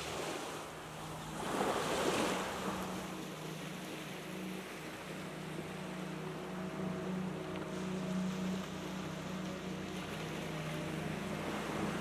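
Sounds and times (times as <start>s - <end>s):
small waves breaking on beach: 0.0s - 6.3s.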